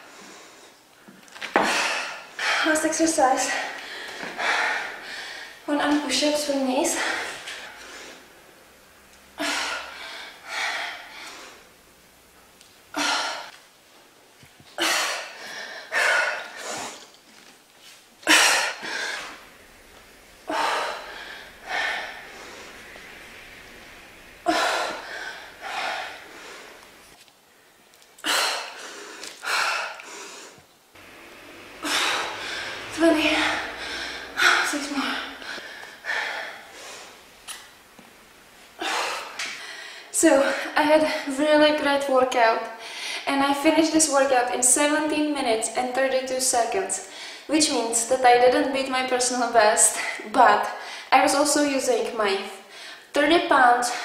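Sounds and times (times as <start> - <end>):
woman panting heavily: 1.6 - 5.7, 6.8 - 8.3, 9.4 - 11.7, 12.9 - 13.6, 14.8 - 17.1, 18.2 - 27.2, 28.2 - 30.6, 31.7 - 37.3, 38.8 - 41.3.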